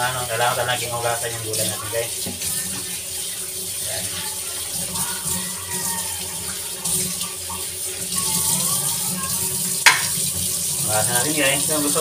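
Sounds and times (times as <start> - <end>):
tap running into metal sink: 9.8 - 10.5.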